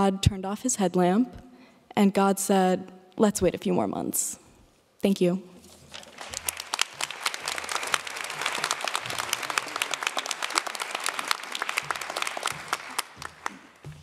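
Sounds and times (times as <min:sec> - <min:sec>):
audience applauding: 0:05.9 - 0:14.0.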